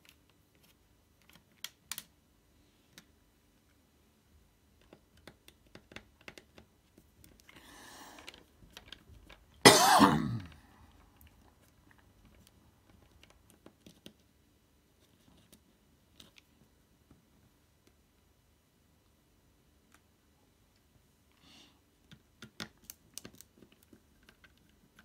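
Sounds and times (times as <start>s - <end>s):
person coughing: 9.6s - 10.6s.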